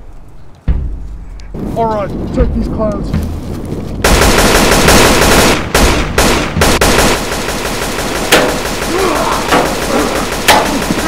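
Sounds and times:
automatic rifle fire: 4.0 - 11.0.

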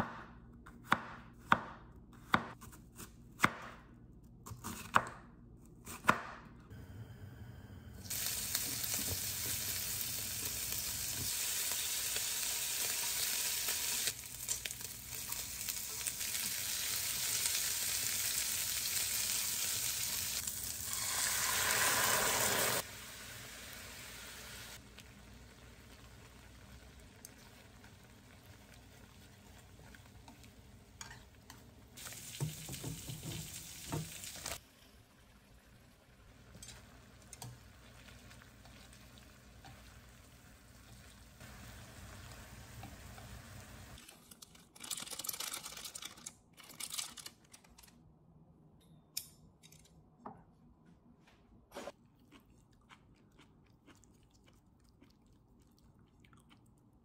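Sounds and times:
noodles sizzling in a frying pan: 8.0 - 44.0.

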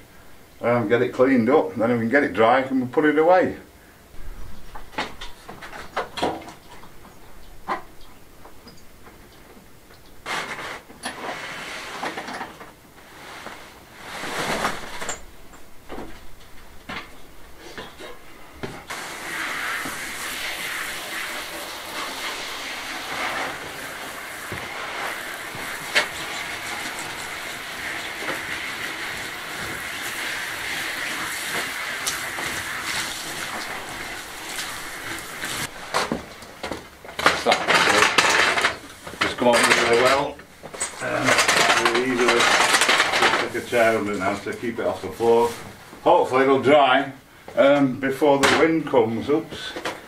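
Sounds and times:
canvas sun shade rustling: 10.2 - 16.8, 18.8 - 37.0, 43.4 - 46.2
hose spray gun hissing: 18.9 - 35.8.

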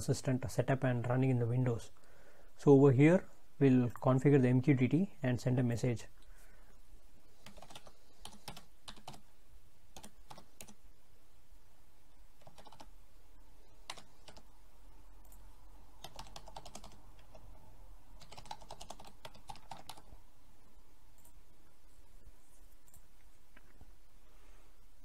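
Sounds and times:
typing on a keyboard: 7.4 - 9.2, 10.0 - 10.8, 12.4 - 12.9, 13.9 - 14.4, 16.0 - 17.4, 18.2 - 20.1.

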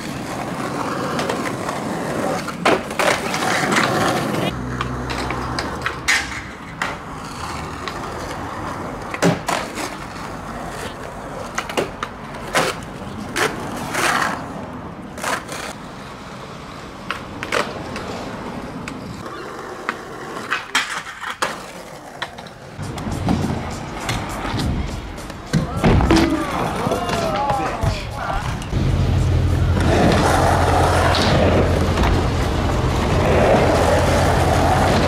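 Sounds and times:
skateboard wheels rolling: 0.0 - 35.0
skateboard pops and clacks: 2.3 - 7.1, 9.0 - 10.2, 11.4 - 14.3, 19.8 - 28.0, 29.8 - 32.3
low rumble: 28.6 - 35.0.

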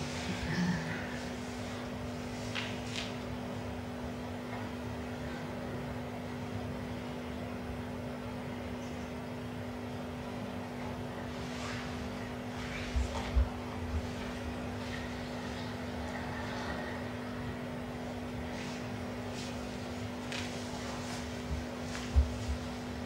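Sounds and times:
low hum with held tones: 0.0 - 23.0.

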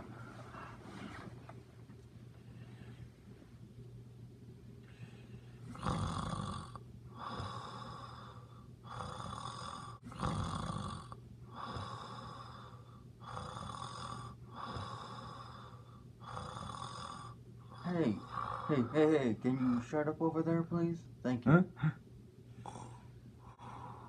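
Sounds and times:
person snoring: 5.7 - 19.9.

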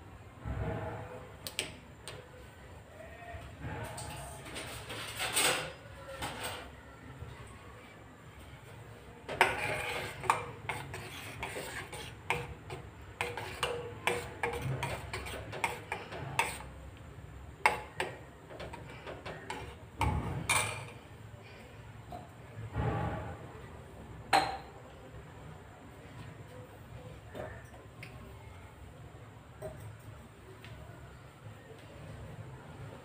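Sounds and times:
spoon scraping and clinking pot: 9.3 - 16.7, 17.6 - 21.0.

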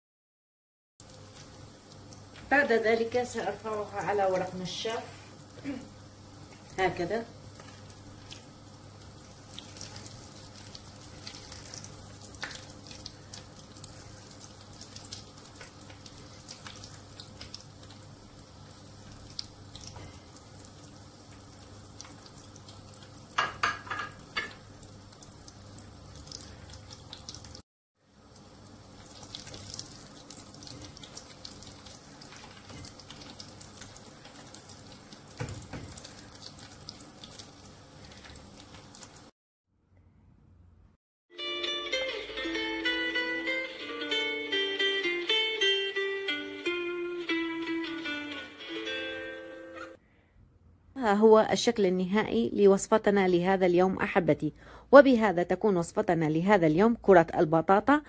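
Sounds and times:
food deep-frying in oil: 1.0 - 39.3.

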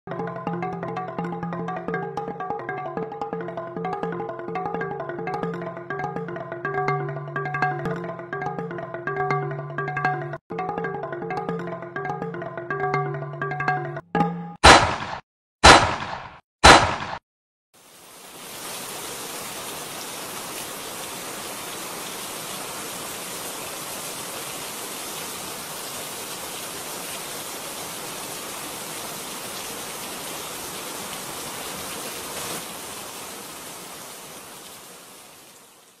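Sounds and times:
steady rain: 17.8 - 36.0.

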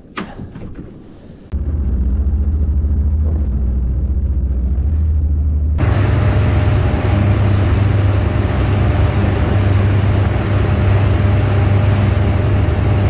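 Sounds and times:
boat motor droning: 1.6 - 13.0
rushing wind and water: 5.8 - 13.0.

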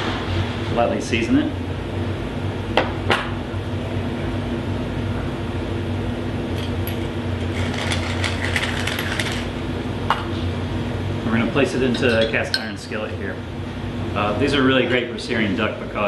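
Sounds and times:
pepper mill grinding: 7.4 - 9.5.

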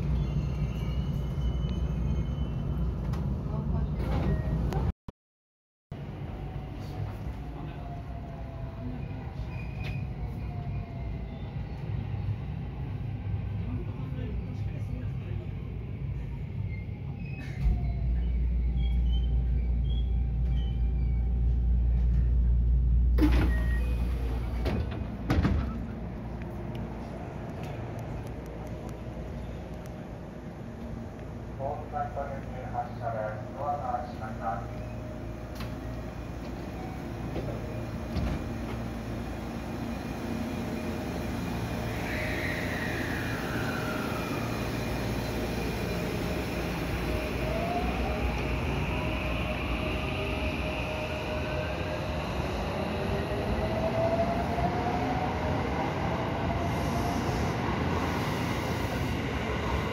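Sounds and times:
electric train humming: 18.0 - 59.9.

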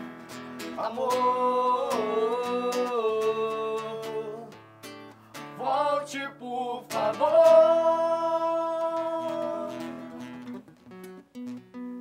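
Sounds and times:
acoustic guitar: 0.0 - 12.0
man and woman singing: 0.8 - 4.6, 5.4 - 10.5.

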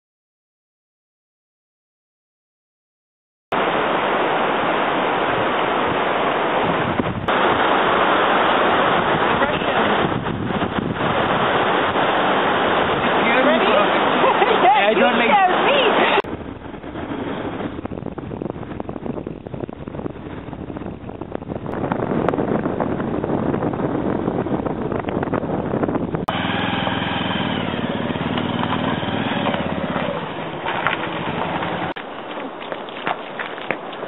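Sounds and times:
motorcycle engine running: 26.0 - 32.0.

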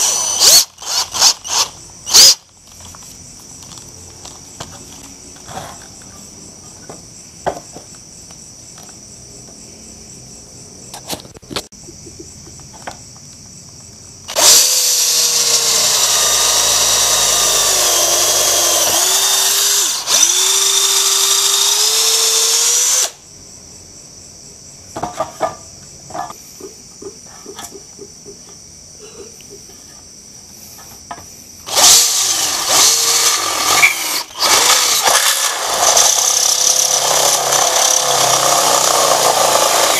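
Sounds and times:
cordless drill boring into metal: 0.0 - 2.4, 14.3 - 23.2, 31.7 - 39.9
crickets chirping: 0.0 - 39.9.

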